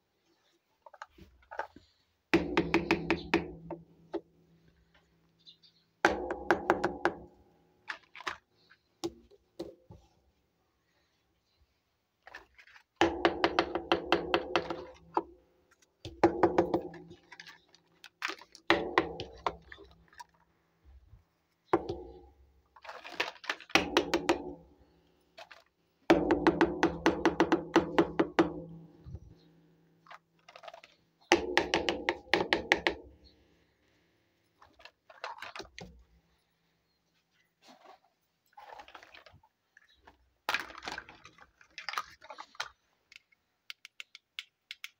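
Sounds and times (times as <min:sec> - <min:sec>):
plastic toy pieces clattering: 0:22.8 - 0:23.7, 0:30.0 - 0:31.0, 0:34.6 - 0:35.8, 0:40.5 - 0:43.4.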